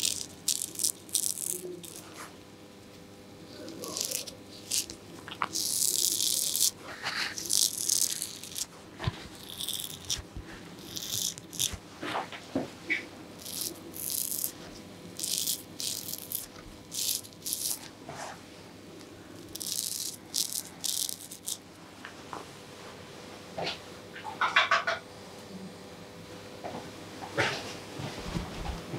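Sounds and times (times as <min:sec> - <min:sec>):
razor scraping beard stubble: 0:00.0 - 0:02.4, 0:03.0 - 0:12.3, 0:12.9 - 0:18.4, 0:19.3 - 0:21.7.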